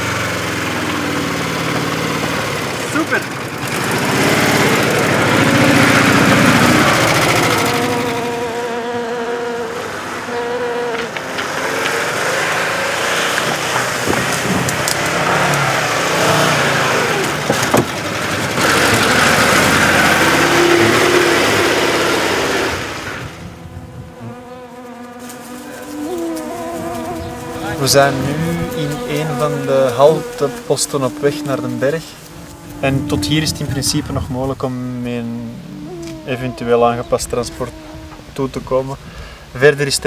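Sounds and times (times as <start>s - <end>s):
vehicle engine on rough road: 0.0s - 37.4s.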